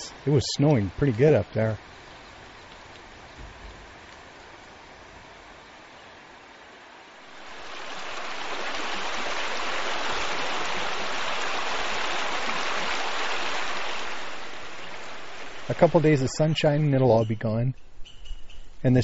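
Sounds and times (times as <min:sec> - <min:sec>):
creek water rushing over rocks: 0:00.0 - 0:16.6.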